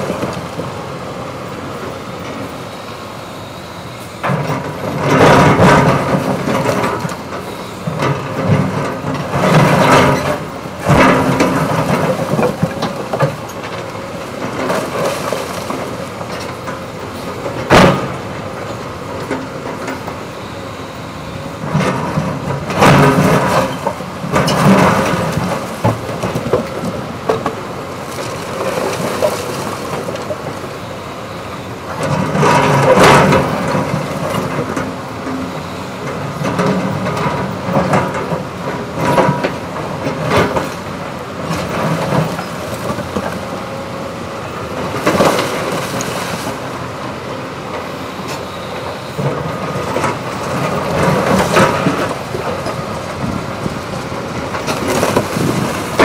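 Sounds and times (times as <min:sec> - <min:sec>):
excavator running under load: 0:00.0 - 0:56.0.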